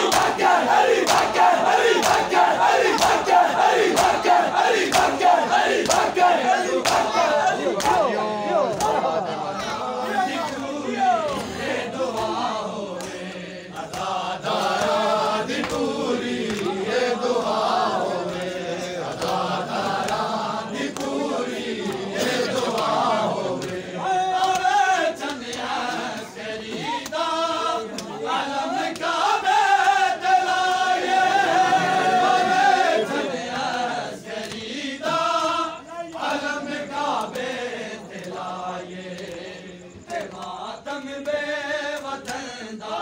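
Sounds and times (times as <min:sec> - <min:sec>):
hands slapping chests: 0:00.0 - 0:09.1, 0:11.2 - 0:16.7, 0:18.2 - 0:28.2, 0:28.8 - 0:29.2, 0:34.4 - 0:34.7, 0:36.1 - 0:36.5, 0:37.1 - 0:38.5, 0:39.1 - 0:40.6, 0:41.2 - 0:42.5
crowd of men chanting: 0:00.0 - 0:43.0.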